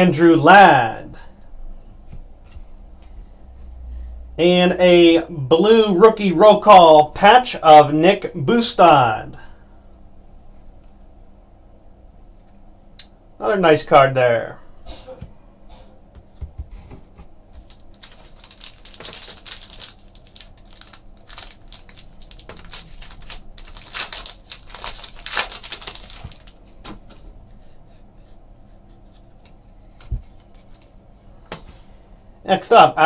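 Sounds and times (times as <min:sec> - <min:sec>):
foil pack tearing and crinkling: 0:17.6 - 0:26.9.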